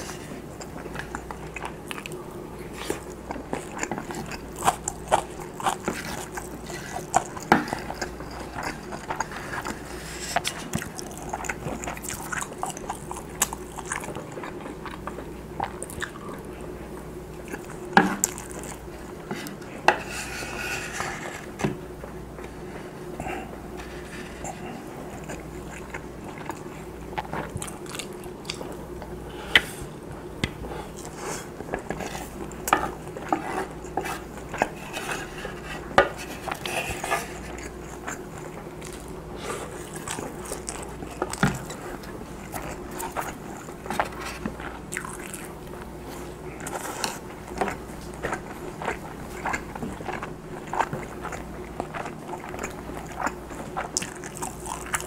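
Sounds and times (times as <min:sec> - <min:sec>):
wet chewing and smacking: 0:00.0 - 0:19.8, 0:24.4 - 0:55.0
faint steady hum: 0:00.0 - 0:55.0
wooden spoon scraping a bowl: 0:19.4 - 0:21.6, 0:31.2 - 0:37.5.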